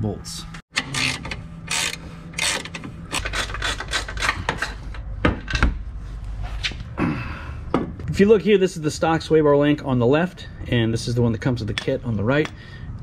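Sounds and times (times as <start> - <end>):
ratchet wrench clicking: 0.8 - 4.4.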